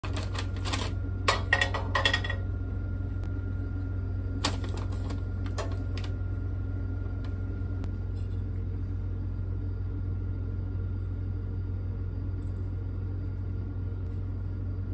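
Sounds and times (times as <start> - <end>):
charcoal clattering on metal: 0.0 - 2.4
steady low hum: 0.0 - 14.9.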